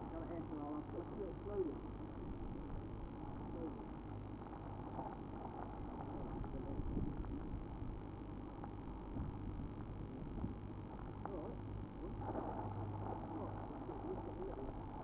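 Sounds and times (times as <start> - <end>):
nestlings peeping: 0.0 - 8.7, 9.4 - 9.7, 12.1 - 15.0.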